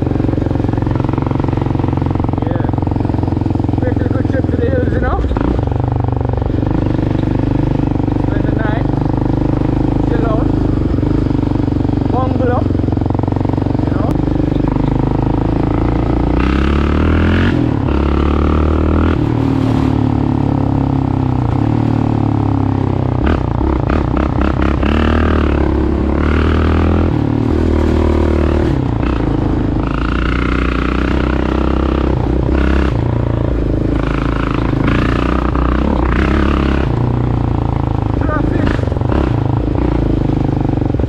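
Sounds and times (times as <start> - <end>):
atv engine running: 0.0 - 41.0
clatters and knocks from rough road: 19.3 - 20.1.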